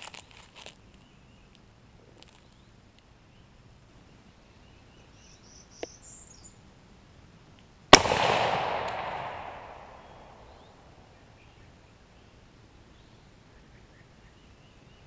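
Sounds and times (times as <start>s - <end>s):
rifle shot with echo: 7.9s - 11.0s.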